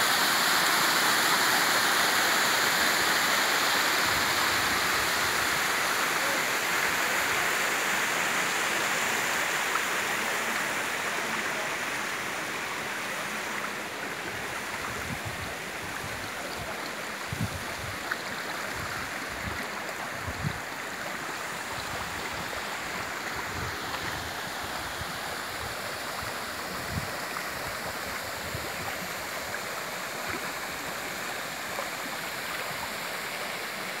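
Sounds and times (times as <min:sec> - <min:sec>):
water rushing over cascade: 0:00.0 - 0:34.0.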